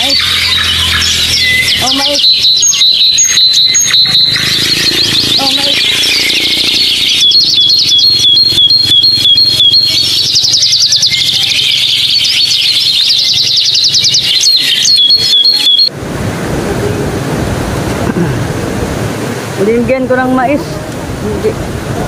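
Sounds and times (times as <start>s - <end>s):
high-pitched chirping calls: 0.0s - 15.9s
steady rushing noise: 0.0s - 22.0s.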